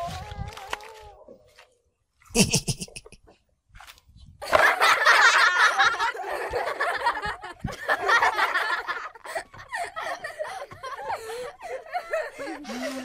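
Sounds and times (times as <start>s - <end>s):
people laughing and giggling: 2.4s - 3.2s, 4.4s - 13.0s.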